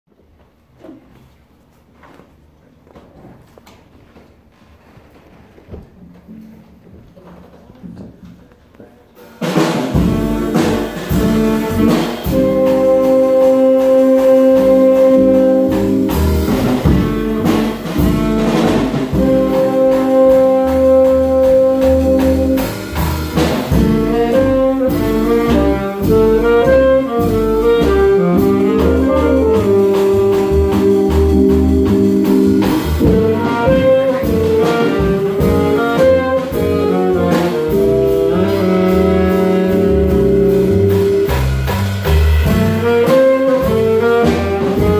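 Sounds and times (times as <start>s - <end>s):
drum kit and cymbals: 9.2s - 44.9s
upright bass: 9.6s - 44.9s
saxophones playing melody: 10.0s - 44.9s.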